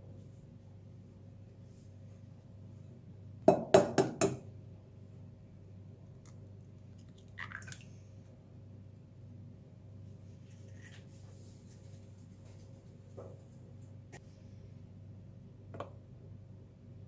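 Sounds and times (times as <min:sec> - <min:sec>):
egg knocking on ceramic bowl: 0:03.5 - 0:04.4.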